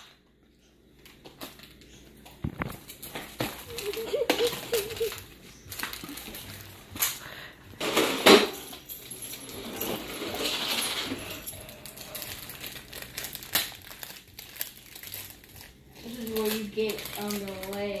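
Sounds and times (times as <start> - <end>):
fingers rustling through hair: 9.2 - 18.0.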